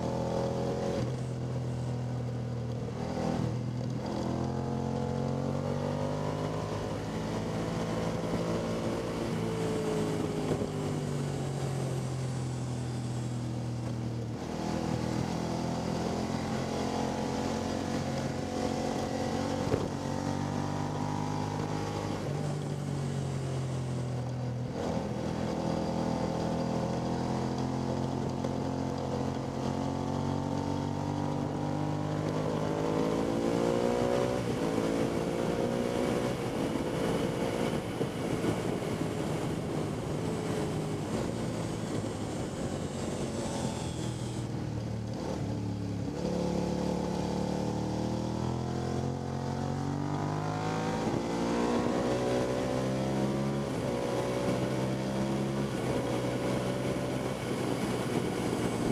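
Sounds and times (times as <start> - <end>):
motorcycle engine accelerating: 0.0 - 58.9
wind noise: 27.9 - 46.5, 48.2 - 58.9.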